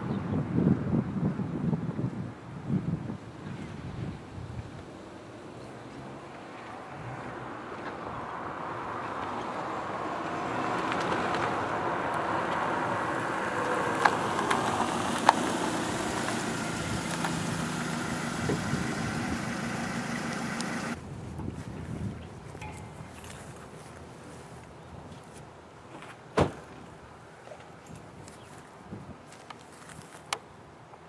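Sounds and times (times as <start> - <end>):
car engine running: 5.9 - 21.0.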